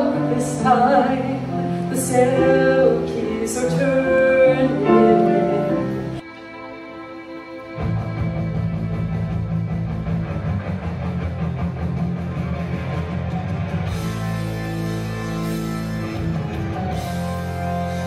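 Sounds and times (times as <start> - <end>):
rock music over sound system: 5.0 - 18.0.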